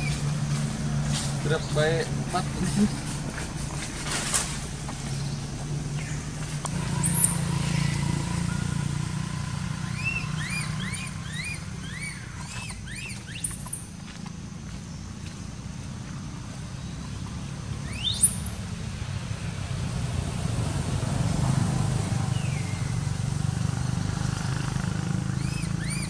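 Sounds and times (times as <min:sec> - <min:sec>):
baby monkey squealing: 0:09.8 - 0:13.8, 0:25.4 - 0:26.0.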